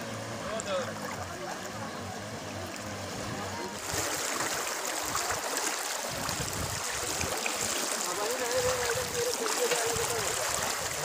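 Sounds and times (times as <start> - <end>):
floodwater rushing: 0.0 - 11.0.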